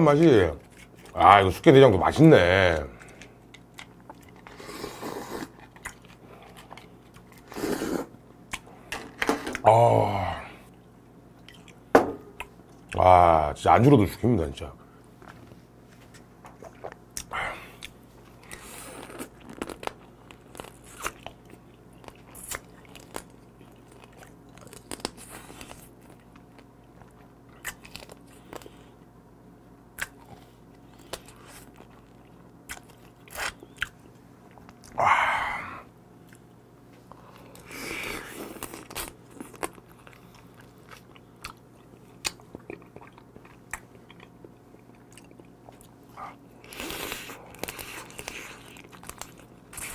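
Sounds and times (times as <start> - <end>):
wet chewing: 2.9 - 8.7, 11.4 - 11.8, 37.4 - 49.9.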